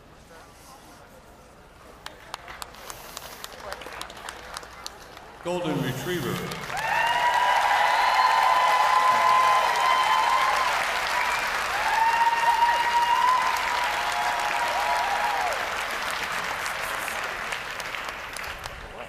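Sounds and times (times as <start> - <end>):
audience applauding: 2.0 - 19.0
cheers and whoops: 6.7 - 15.9.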